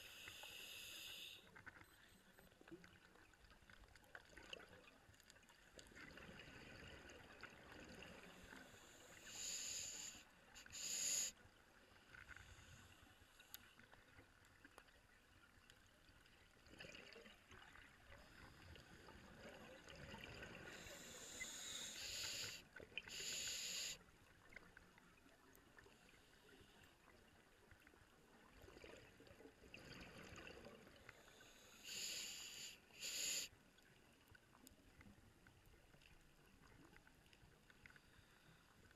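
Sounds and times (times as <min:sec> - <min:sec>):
regulator breathing bursts: 0:00.0 - 0:01.5, 0:20.8 - 0:24.0
faint underwater hiss: 0:00.0 - 0:02.2, 0:06.0 - 0:14.2, 0:17.7 - 0:27.5, 0:28.4 - 0:35.0, 0:36.2 - 0:38.9.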